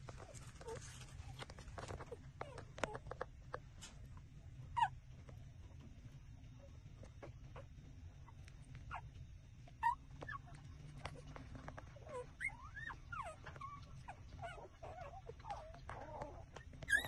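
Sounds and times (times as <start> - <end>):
puppies squeaking and whimpering: 0.1 - 3.3, 4.7 - 5.0, 7.0 - 9.1, 9.7 - 17.0
puppies sucking clicks: 9.8 - 17.0.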